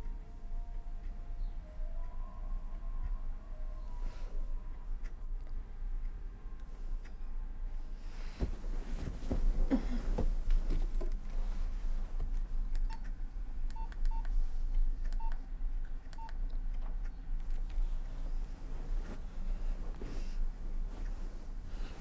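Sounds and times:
rustling and shuffling: 0:08.0 - 0:12.6, 0:16.9 - 0:22.0.

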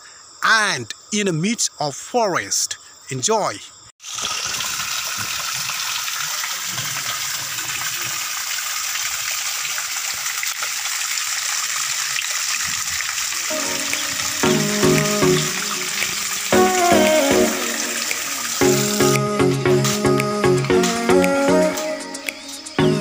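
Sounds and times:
waterfall splashing over rock: 0:04.0 - 0:19.0
music with held notes: 0:13.5 - 0:23.0.

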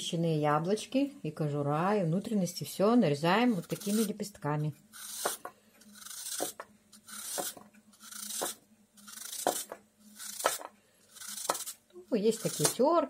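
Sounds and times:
knife slicing apple: 0:03.4 - 0:04.2, 0:04.9 - 0:13.0.

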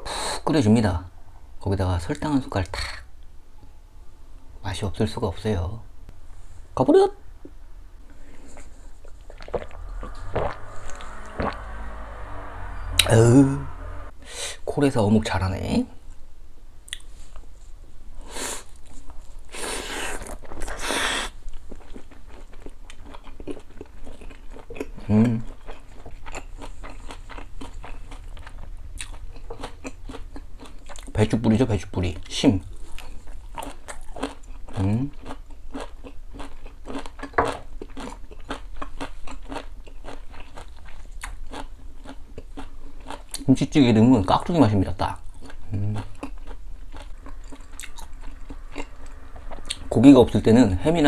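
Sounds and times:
man chewing with mouth clicks: 0:18.6 - 0:31.2, 0:32.7 - 0:43.5, 0:45.2 - 0:49.9
short breathy hisses: 0:20.8 - 0:21.3.

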